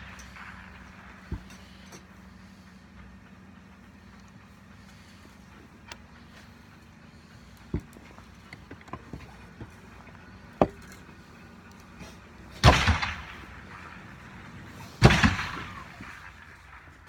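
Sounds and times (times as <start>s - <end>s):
gunshots echoing: 12.5s - 16.8s.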